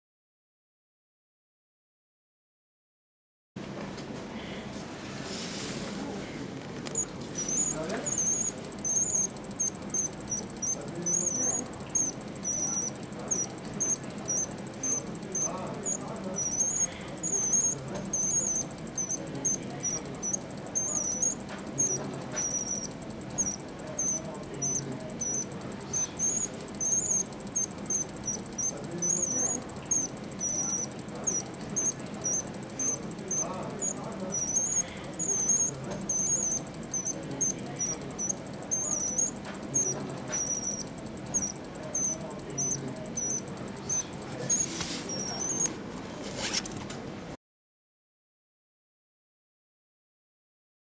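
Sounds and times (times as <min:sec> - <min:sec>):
mechanical bird chirps and trills: 0:06.8 - 0:45.8.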